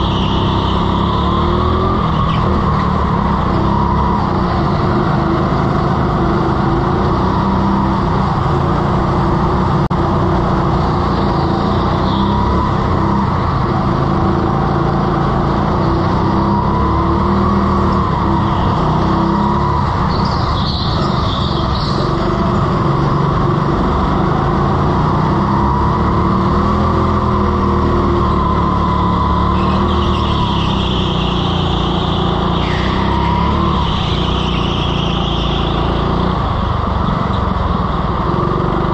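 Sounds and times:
tyre squeals: 0:00.0 - 0:05.0, 0:16.2 - 0:22.5, 0:27.7 - 0:36.5
go-kart engine revving: 0:00.0 - 0:38.9.

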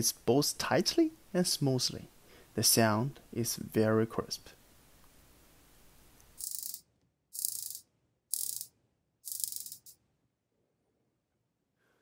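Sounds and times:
watch bezel ratchet clicks: 0:06.4 - 0:06.8, 0:07.4 - 0:08.7, 0:09.3 - 0:10.0.

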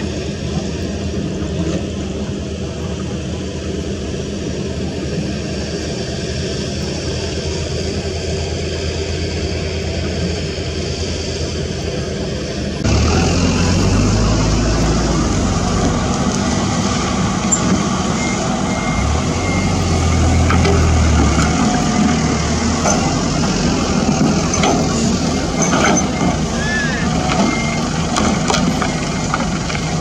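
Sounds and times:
diesel truck engine drone: 0:00.0 - 0:30.0
short beeps: 0:17.5 - 0:21.1.

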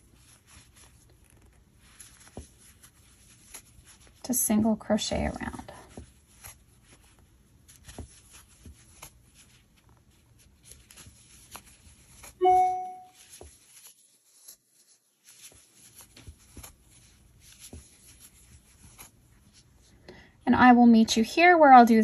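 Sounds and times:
crochet hook scratching yarn: 0:00.0 - 0:19.7
ringing musical tone: 0:12.4 - 0:13.1.

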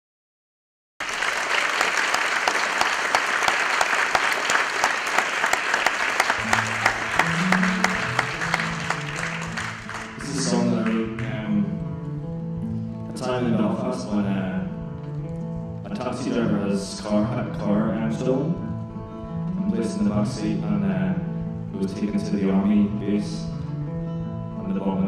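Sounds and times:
audience applauding: 0:01.0 - 0:11.3
quiet acoustic guitar notes: 0:06.4 - 0:25.0
man's voice: 0:10.1 - 0:11.9, 0:13.1 - 0:14.8, 0:15.8 - 0:18.7, 0:19.6 - 0:23.6, 0:24.7 - 0:25.0.

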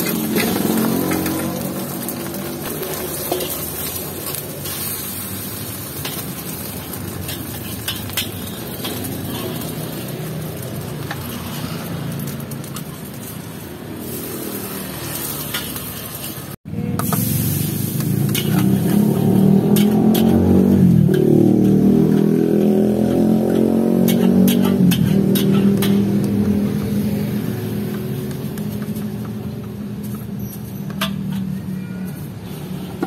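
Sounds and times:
egg sizzling in oil: 0:00.0 - 0:20.4
metal spatula scraping pan: 0:05.9 - 0:13.2, 0:18.2 - 0:26.3.

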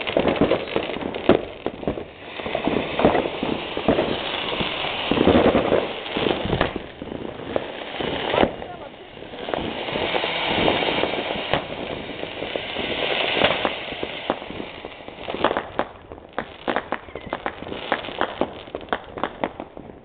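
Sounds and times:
firecrackers cracking and popping: 0:00.0 - 0:20.0
firework fountain hissing: 0:00.0 - 0:20.0.

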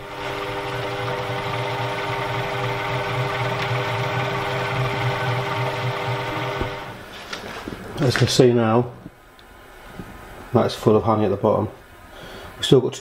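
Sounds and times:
honey extractor motor humming: 0:00.0 - 0:07.0.

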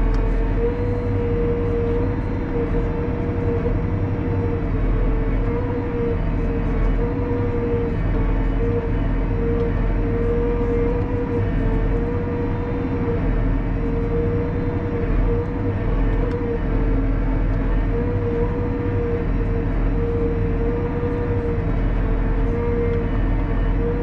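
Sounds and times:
hydraulic whine: 0:00.0 - 0:24.0
tractor engine drone: 0:00.0 - 0:24.0.

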